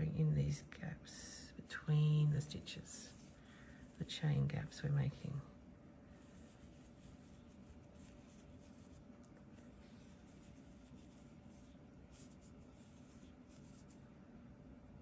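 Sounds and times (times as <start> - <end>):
yarn rustling over crochet hook: 6.1 - 14.1.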